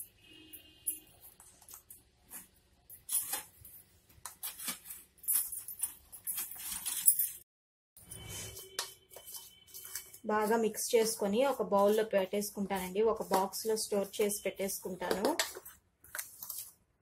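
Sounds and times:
spoon scraping rock salt: 0:08.2 - 0:16.7.

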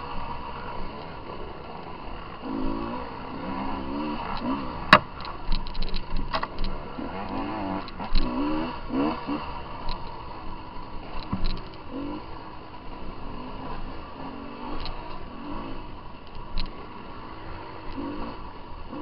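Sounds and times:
dirt bike engines revving: 0:00.0 - 0:19.0
sharp knocks: 0:04.9 - 0:05.1.

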